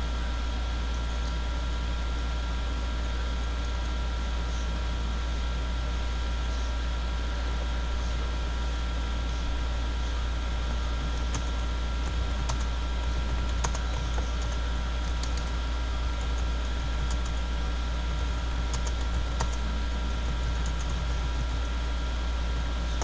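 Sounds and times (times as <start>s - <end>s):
low hum and hiss: 0.0s - 23.0s
keyboard typing: 11.1s - 15.6s, 16.2s - 17.5s, 18.2s - 21.6s.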